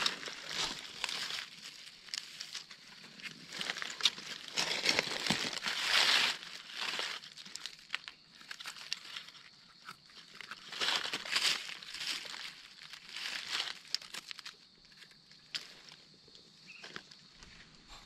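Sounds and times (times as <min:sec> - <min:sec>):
dry leaves crunching and rustling: 0:00.0 - 0:09.5, 0:10.2 - 0:14.6.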